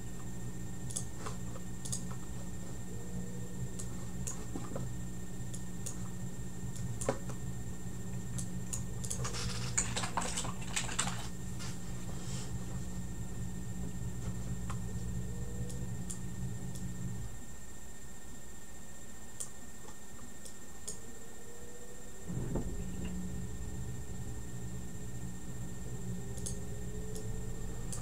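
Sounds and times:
faint high whine: 0.0 - 28.0
low electrical hum: 0.0 - 28.0
small clicks: 0.8 - 2.2, 8.3 - 11.3, 19.4 - 21.0, 26.3 - 27.3.

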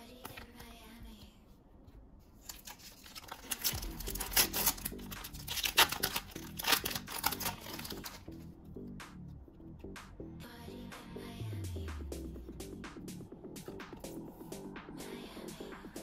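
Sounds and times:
wrapper tearing and crinkling: 2.4 - 8.3.

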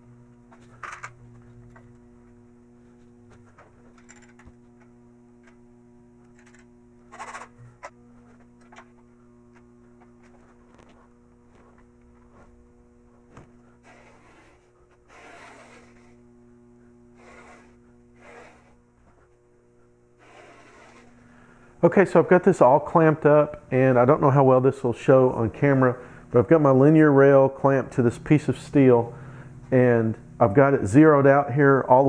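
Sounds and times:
steady electrical hum: 0.0 - 32.0
rustling and shuffling: 7.5 - 15.1, 18.8 - 19.5.

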